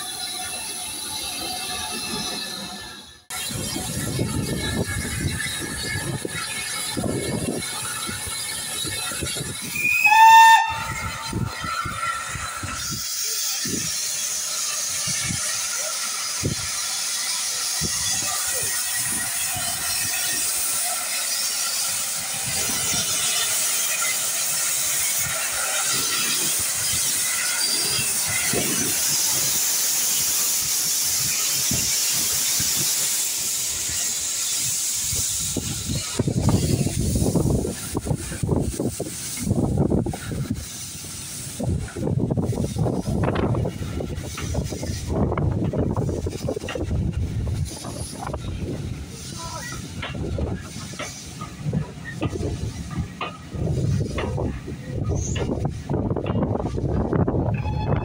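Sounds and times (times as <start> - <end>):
steam hissing: 0.0 - 58.0
steam locomotive whistle: 9.7 - 12.0, 57.4 - 58.0
wind thumping on microphone: 35.1 - 40.7, 41.4 - 58.0.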